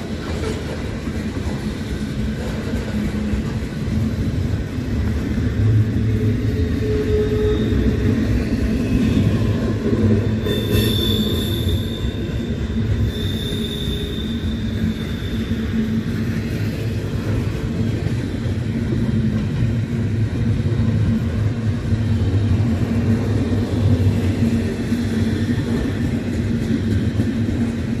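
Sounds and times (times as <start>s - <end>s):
train wheels rumbling on track: 0.0s - 28.0s
high thin wheel squeal: 10.5s - 12.2s, 13.0s - 15.5s.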